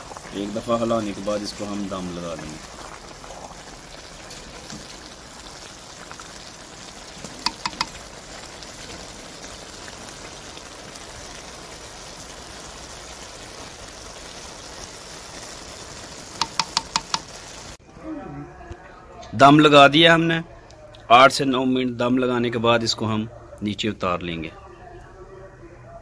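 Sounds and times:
rice sizzling in a pot: 0.0s - 17.8s
spatula knocking against pot: 7.4s - 8.0s, 16.4s - 17.4s
wooden spatula stirring rice: 16.4s - 17.2s.

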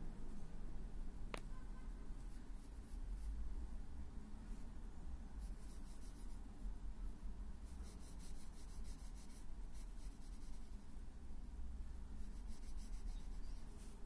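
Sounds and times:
low steady rumble: 0.0s - 14.0s
pencil scratching on paper: 5.4s - 6.4s, 7.6s - 10.8s, 12.2s - 14.0s.

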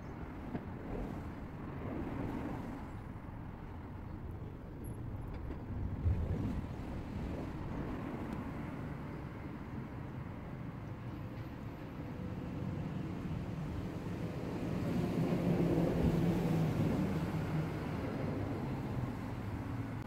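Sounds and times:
burner flame rumbling: 0.2s - 9.2s.

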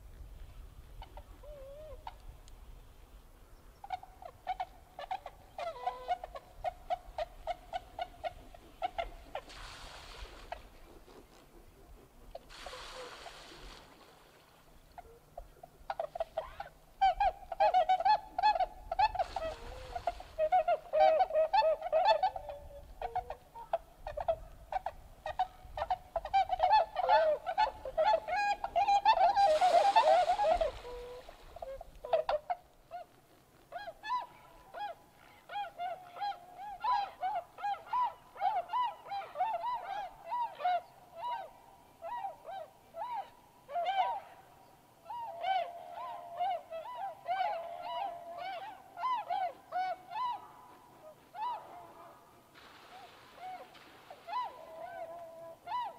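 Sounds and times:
swans honking: 15.0s - 33.1s.

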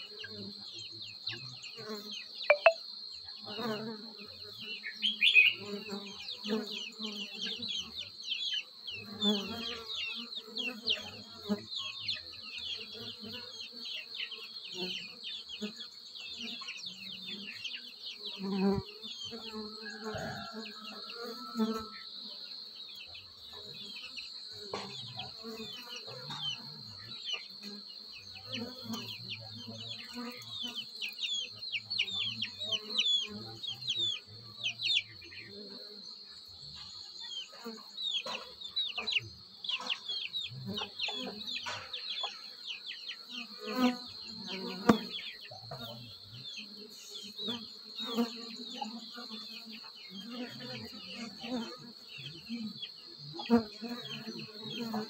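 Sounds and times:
short falling chirps: 2.5s - 2.8s
honeybees buzzing: 9.0s - 55.0s.

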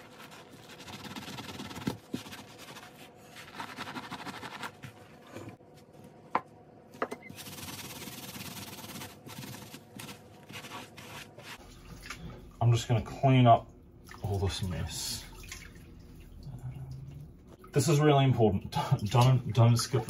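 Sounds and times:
sponge scrubbing fabric: 0.0s - 5.2s, 7.3s - 11.8s.

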